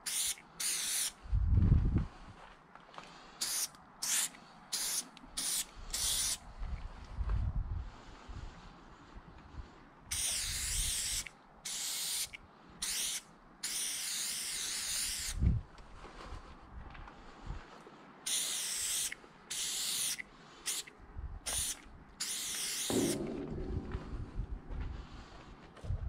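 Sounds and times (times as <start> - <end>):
spray-paint can hissing: 0.0 - 1.1, 3.4 - 6.4, 10.1 - 15.4, 18.3 - 20.9, 21.5 - 23.2
low thump: 22.9 - 26.0.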